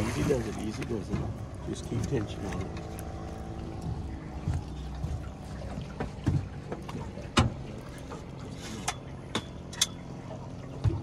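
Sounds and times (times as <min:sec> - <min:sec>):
knocks and clicks on boat: 0:00.0 - 0:11.0
outboard motor idling: 0:00.0 - 0:11.0.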